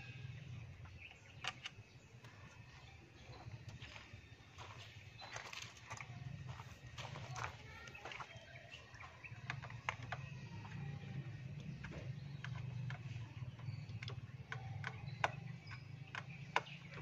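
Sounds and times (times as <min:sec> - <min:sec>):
small metallic clicks and taps: 0:00.8 - 0:02.6.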